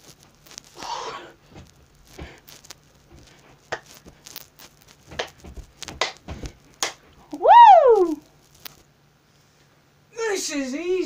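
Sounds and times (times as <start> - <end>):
body thumping on carpet: 1.4 - 2.5, 5.1 - 6.6
hand claps: 5.2 - 6.2, 6.8 - 7.0.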